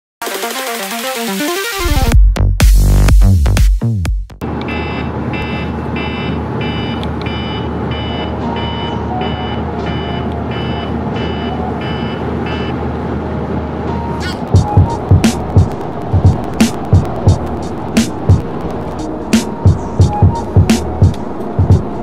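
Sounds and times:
phone alarm beeping: 0:04.6 - 0:12.8.

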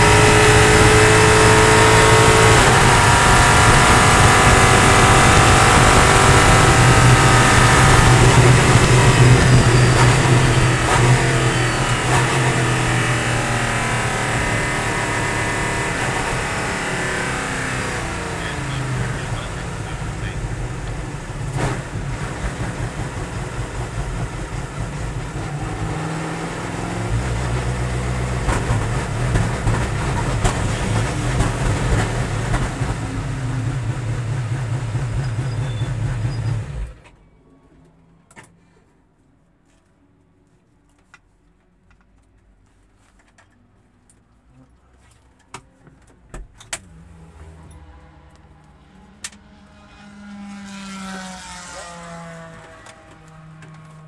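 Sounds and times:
race car engine running: 0:00.0 - 0:37.0.

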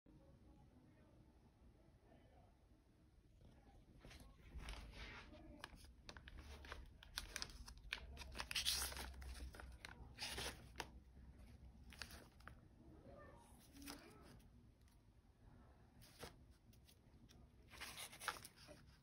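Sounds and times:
records flipped in plastic sleeves: 0:04.0 - 0:12.6, 0:16.0 - 0:19.0.

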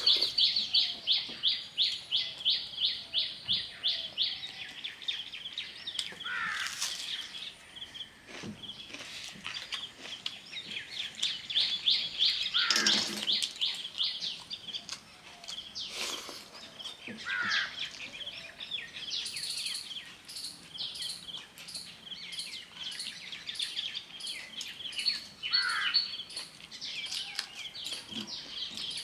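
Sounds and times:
small birds chirping: 0:00.0 - 0:29.0
wet sounds of hand-eating rice: 0:12.9 - 0:17.0.

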